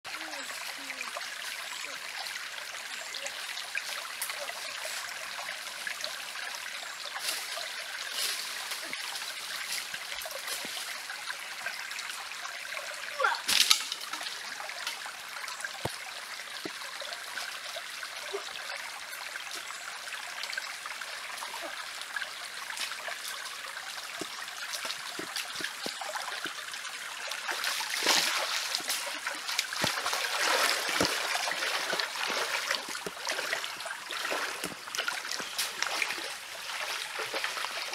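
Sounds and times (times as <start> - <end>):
stream trickling: 0.0 - 37.9
water splashing: 22.6 - 37.9.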